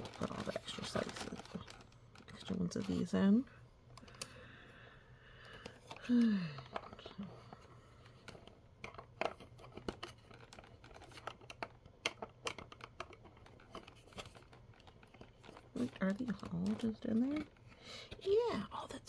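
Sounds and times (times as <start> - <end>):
plastic toy pieces clicking: 8.2 - 17.6.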